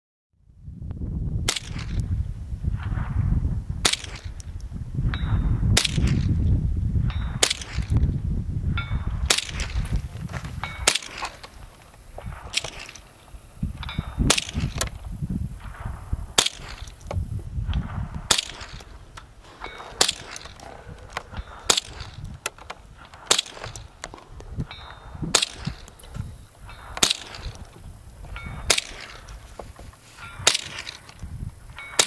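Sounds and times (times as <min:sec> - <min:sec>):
rifle shots: 0:01.5 - 0:02.1, 0:02.7 - 0:04.4, 0:05.3 - 0:06.4, 0:07.2 - 0:08.0, 0:09.2 - 0:10.0, 0:10.7 - 0:11.6, 0:12.2 - 0:13.2, 0:14.0 - 0:15.0, 0:15.6 - 0:24.2, 0:24.8 - 0:27.8, 0:28.4 - 0:29.4, 0:30.3 - 0:31.1.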